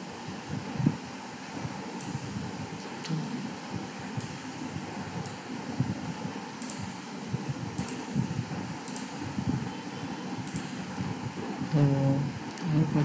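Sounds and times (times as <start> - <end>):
fan hum: 0.0 - 13.0
computer mouse clicking: 2.0 - 2.4, 4.2 - 4.5, 6.6 - 7.0, 7.8 - 8.1, 8.8 - 9.2, 10.4 - 10.8.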